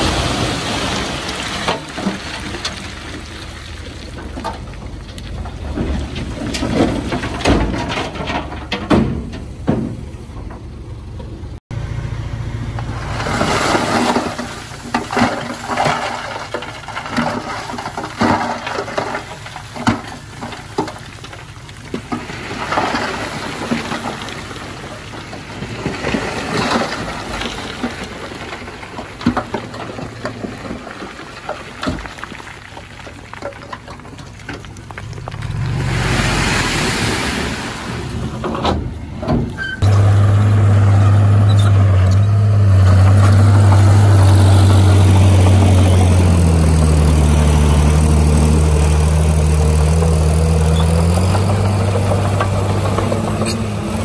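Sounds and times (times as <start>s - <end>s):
bulldozer diesel engine under load: 0.0s - 54.0s
bulldozer tracks clanking: 0.0s - 54.0s
rock grinding and scraping: 13.1s - 38.7s, 39.8s - 54.0s.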